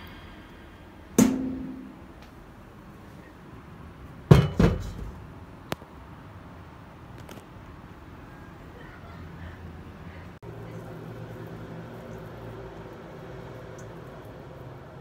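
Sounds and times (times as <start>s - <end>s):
metal pot knocks: 1.2s - 2.1s.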